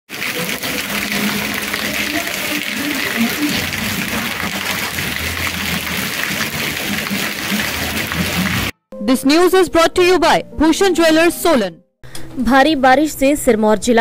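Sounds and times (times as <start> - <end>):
heavy rain on pavement: 0.1 - 8.7.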